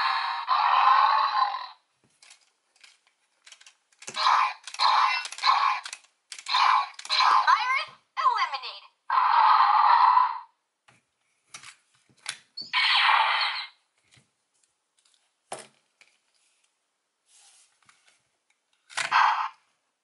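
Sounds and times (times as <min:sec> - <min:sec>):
harsh electronic toy sound effects: 0:00.0 - 0:01.8, 0:04.2 - 0:05.9, 0:06.5 - 0:10.5, 0:12.6 - 0:13.8, 0:19.0 - 0:19.6
plastic toy keys clicking: 0:02.2 - 0:07.3.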